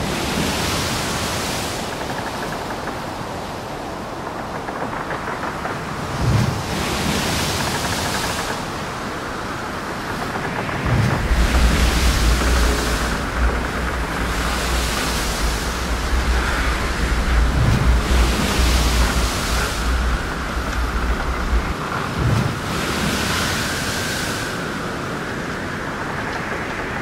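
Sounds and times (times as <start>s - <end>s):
wind buffeting microphone: 0.0s - 27.0s
hull rushing through sea: 6.1s - 27.0s.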